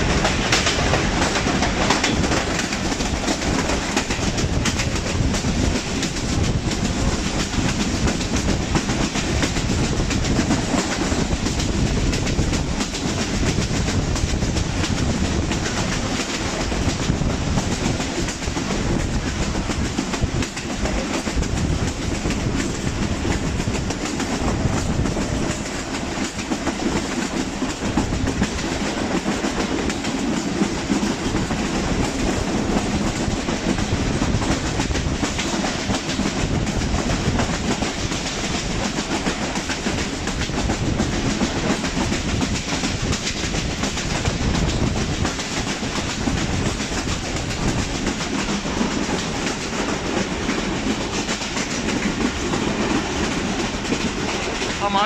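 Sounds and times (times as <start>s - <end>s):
train wheels on track: 0.0s - 55.0s.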